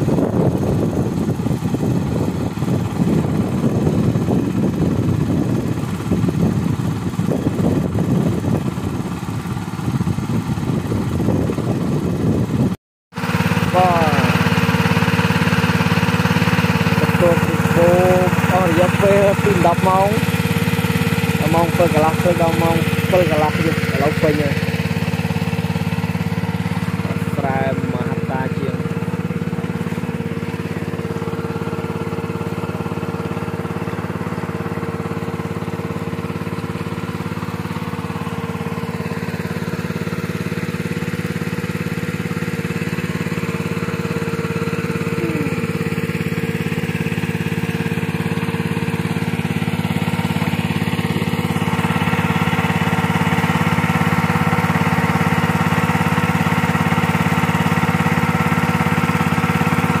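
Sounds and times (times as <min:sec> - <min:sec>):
water pump engine running: 0:00.0 - 1:00.0.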